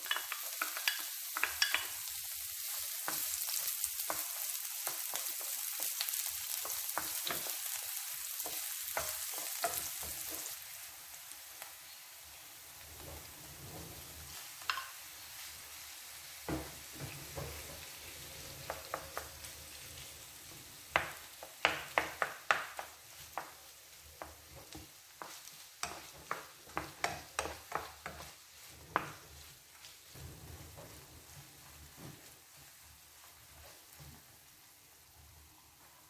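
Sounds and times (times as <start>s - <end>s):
wooden spoon tapping a pan: 0.0s - 10.6s, 14.6s - 15.0s, 16.5s - 19.6s, 20.9s - 34.3s
chicken sizzling in oil: 0.0s - 36.0s.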